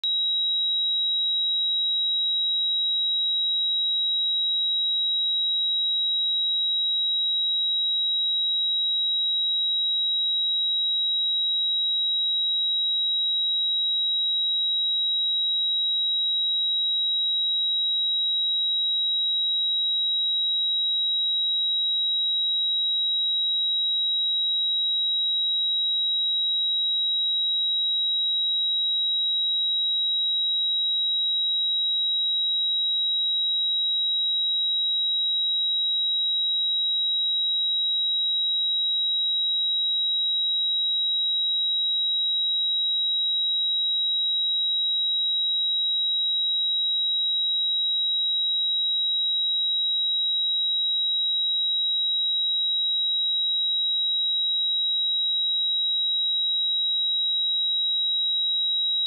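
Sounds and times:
high-pitched sine-wave test tone: 0.0s - 44.6s.

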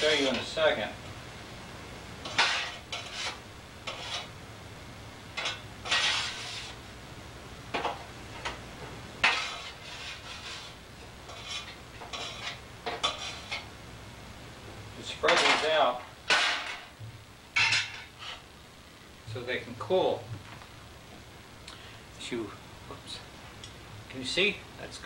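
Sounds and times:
spatula scraping cookie sheet: 2.2s - 4.3s, 5.4s - 6.8s, 9.2s - 13.7s, 17.6s - 18.4s.

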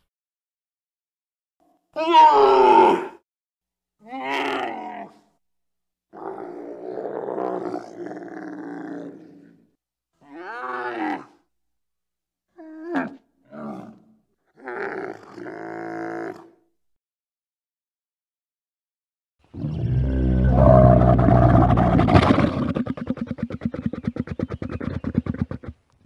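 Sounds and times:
camel-like calls: 19.6s - 25.8s.

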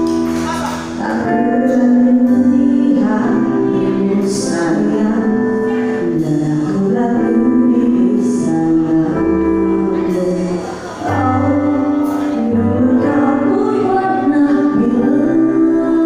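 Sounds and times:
electric guitar: 0.0s - 16.0s
keyboard: 0.0s - 16.0s
woman singing into a microphone: 0.6s - 16.0s
drums: 9.9s - 13.8s.

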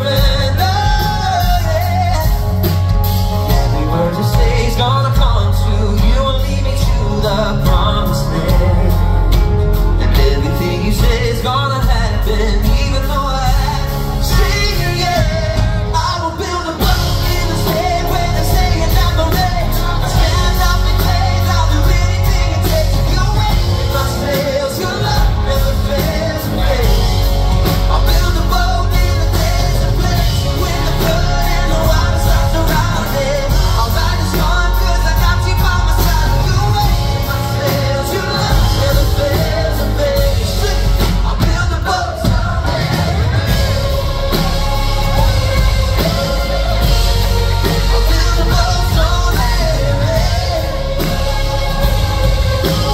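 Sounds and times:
live pop-rock band: 0.0s - 52.9s
man singing into microphone: 0.0s - 52.9s.

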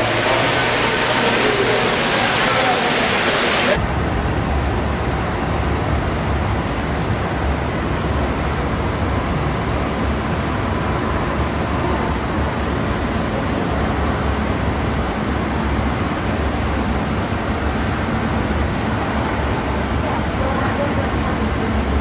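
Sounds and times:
fountain water splashing: 0.0s - 3.8s.

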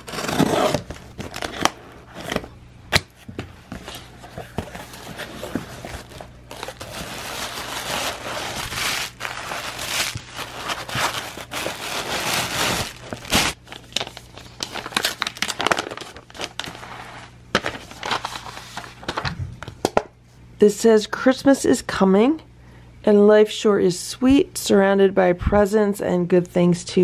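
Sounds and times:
tissue paper crinkling: 3.7s - 19.2s.

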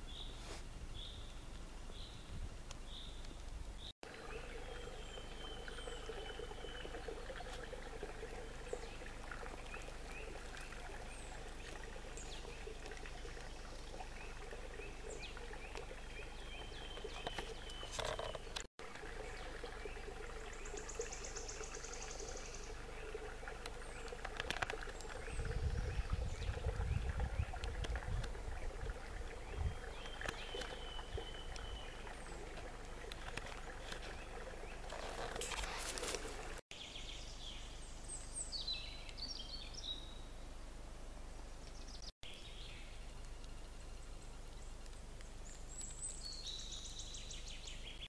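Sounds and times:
small birds chirping: 0.0s - 40.4s
stream trickling: 2.9s - 40.3s, 41.4s - 48.0s
low rumbling on microphone: 25.1s - 32.5s.

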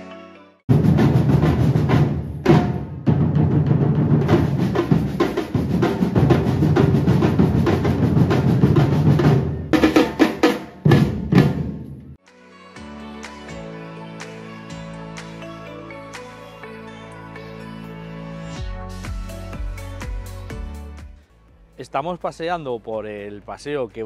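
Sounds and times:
street drum band playing: 0.7s - 12.2s.

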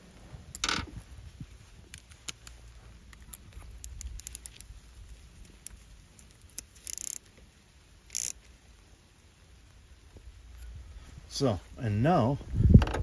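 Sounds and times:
small metal clicks and taps: 1.9s - 4.7s.

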